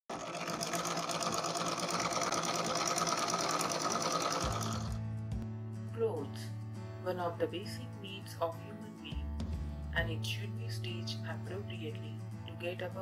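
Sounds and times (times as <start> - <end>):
sewing machine stitching: 0.0 - 5.0.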